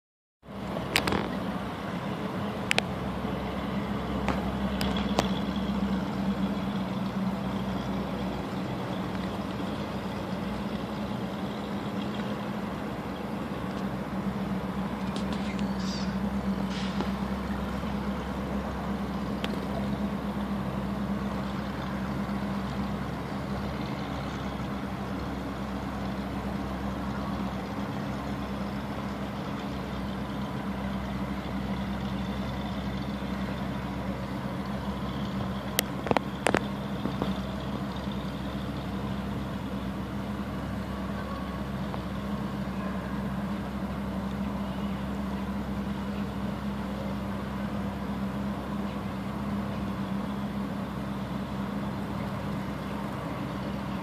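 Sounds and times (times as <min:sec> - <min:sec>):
low mechanical hum: 0:00.6 - 0:54.0.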